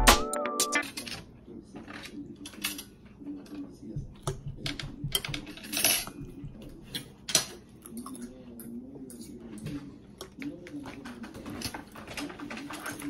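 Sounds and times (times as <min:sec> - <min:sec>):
cutlery clinking on plates: 0:04.2 - 0:08.3.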